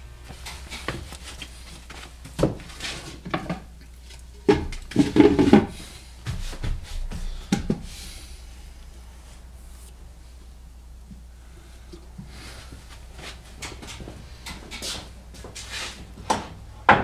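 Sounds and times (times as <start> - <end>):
low steady hum: 0.0 - 17.0
tools knocking and scraping: 4.4 - 5.8.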